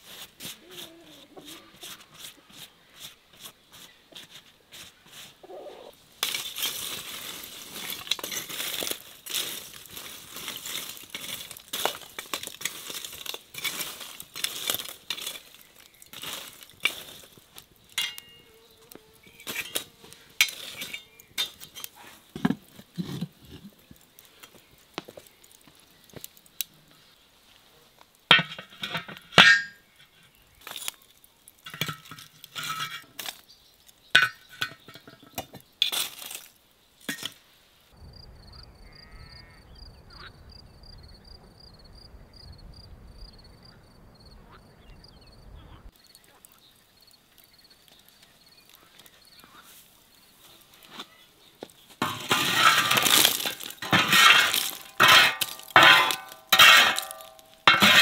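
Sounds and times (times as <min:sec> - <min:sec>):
tongs scraping charcoal: 0:00.0 - 0:05.4, 0:06.1 - 0:27.2, 0:28.1 - 0:37.4, 0:47.4 - 0:58.0
charcoal pieces clinking: 0:06.2 - 0:18.4, 0:34.2 - 0:37.4, 0:52.0 - 0:58.0.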